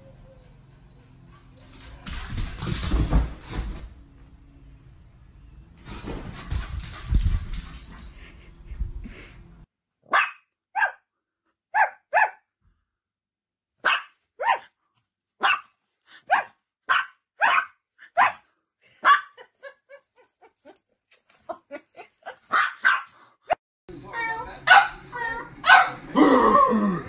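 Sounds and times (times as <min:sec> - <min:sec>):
dog barking: 0:10.1 - 0:11.1, 0:11.7 - 0:12.4, 0:13.8 - 0:14.7, 0:15.4 - 0:15.7, 0:16.3 - 0:18.4, 0:19.0 - 0:19.4, 0:22.5 - 0:23.1, 0:24.7 - 0:25.0, 0:25.6 - 0:26.1.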